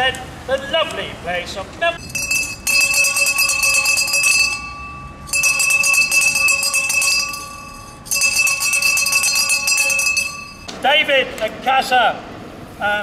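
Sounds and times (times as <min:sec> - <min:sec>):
handbell rung rapidly: 0:02.0 - 0:10.7.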